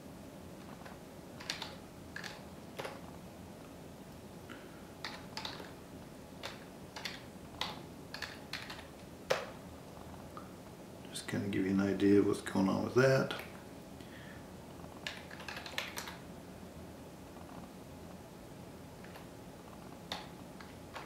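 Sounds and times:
computer keyboard keystrokes: 0.8 - 3.0, 5.0 - 5.8, 6.4 - 9.5, 15.0 - 16.2, 19.0 - 19.3, 20.1 - 21.0.

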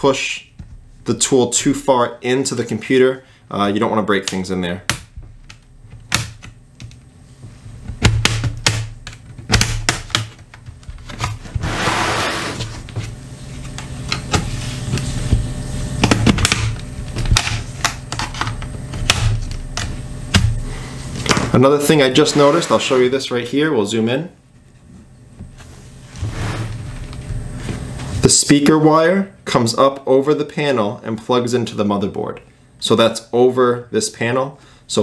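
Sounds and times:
scraping rustle: 22.1 - 23.2.

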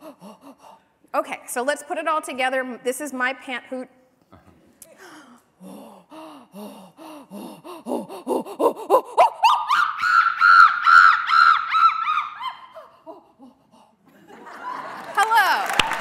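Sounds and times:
woman imitating chimpanzee hoots: 7.8 - 13.5.

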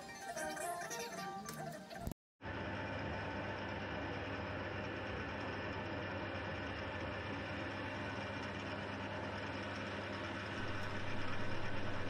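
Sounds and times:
metal lathe running: 3.3 - 12.0.

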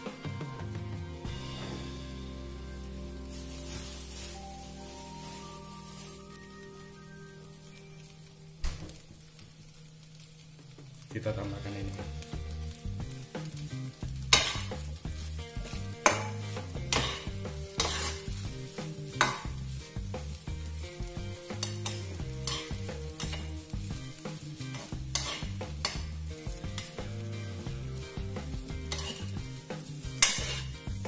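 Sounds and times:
fried rice sizzling: 0.0 - 31.0
spatula scraping a wok: 12.1 - 31.0.

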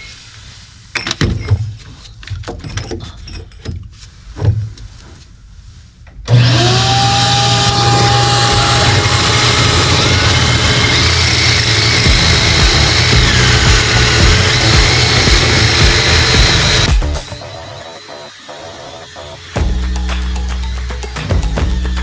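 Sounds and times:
power drill whining: 6.3 - 20.0.

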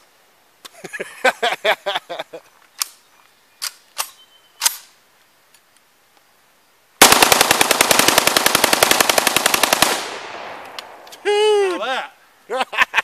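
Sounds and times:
rapid rifle fire: 7.0 - 10.7.

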